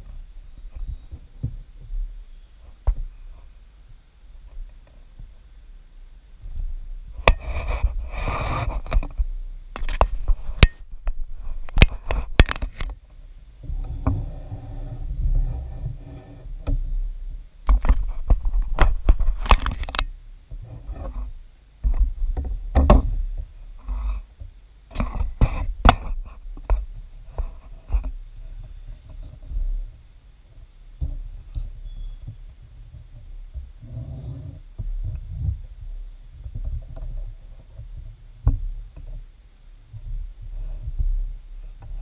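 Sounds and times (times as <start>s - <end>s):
panels scraping: 6.5s - 9.2s, 13.6s - 17.0s.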